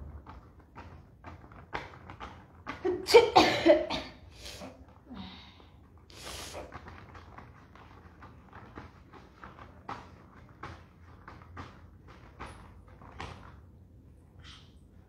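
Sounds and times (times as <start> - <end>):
person coughing: 3.0 - 4.7
breathing: 4.4 - 6.7.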